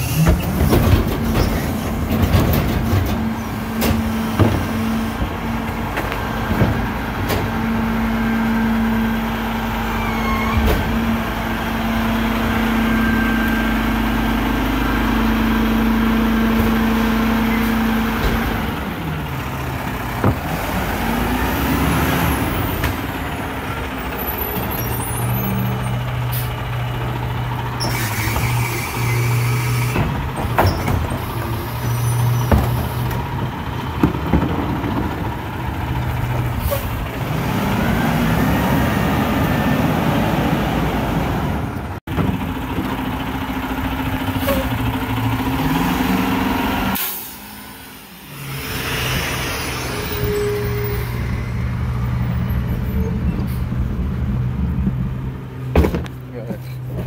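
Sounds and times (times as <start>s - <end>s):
diesel truck engine running: 0.0s - 57.0s
air brakes hissing: 36.6s - 37.0s, 44.3s - 44.8s, 47.0s - 51.5s.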